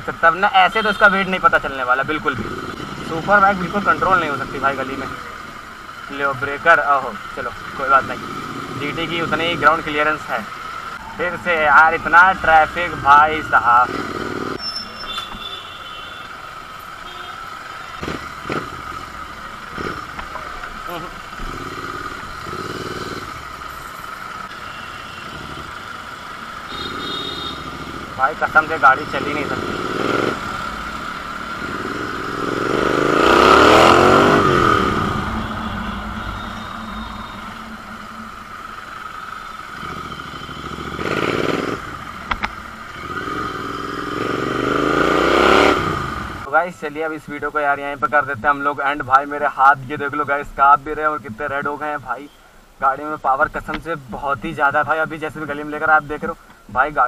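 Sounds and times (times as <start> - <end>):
motorcycle engine running: 0.3 - 14.6, 16.5 - 46.5.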